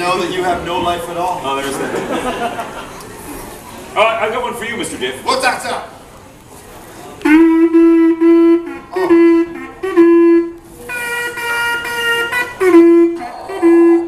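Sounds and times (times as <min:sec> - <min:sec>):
conch shell trumpet blasts: 0:07.2 - 0:14.0.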